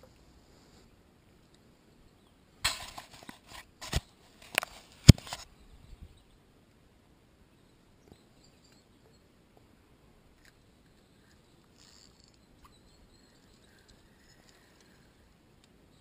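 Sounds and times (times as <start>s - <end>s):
faint high chirps and ticks: 7.4s - 16.0s.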